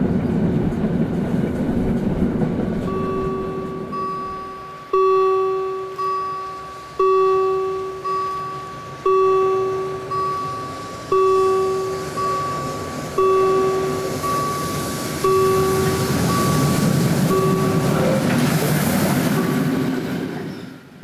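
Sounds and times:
bell striking: 2.8 - 18.4.

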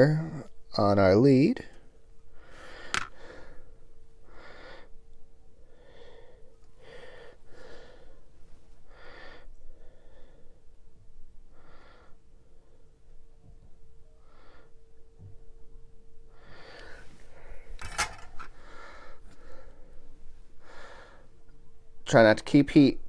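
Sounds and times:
faint steady hum: 0.0 - 23.0
person breathing close: 1.6 - 5.0, 5.6 - 10.8, 11.5 - 12.9, 16.3 - 21.4.

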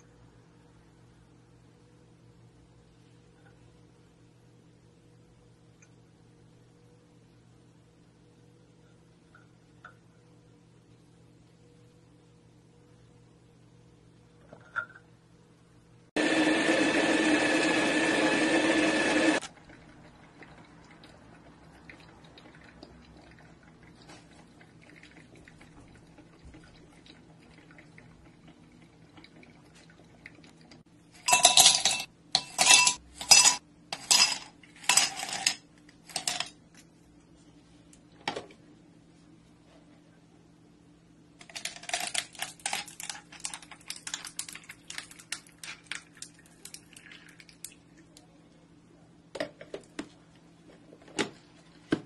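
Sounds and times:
ice cubes clinking in glass: 31.2 - 36.5.

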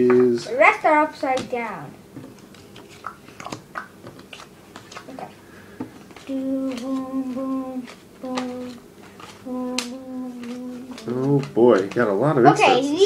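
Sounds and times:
trading cards flicked through: 6.0 - 12.2
person humming: 6.2 - 11.6.

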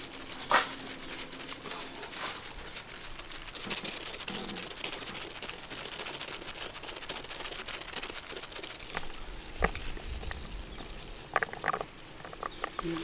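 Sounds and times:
cheese being grated: 0.0 - 10.4.

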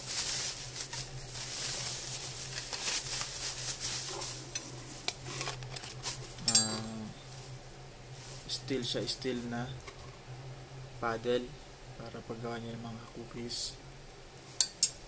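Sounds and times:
bubble wrap crinkling and crackling: 0.0 - 10.1
steel whisk and beaters clinking: 6.4 - 7.0.

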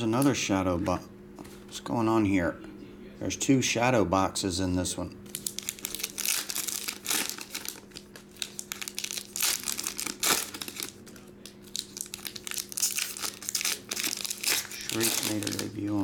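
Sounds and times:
foil wrapper tearing and crinkling: 5.3 - 16.0.

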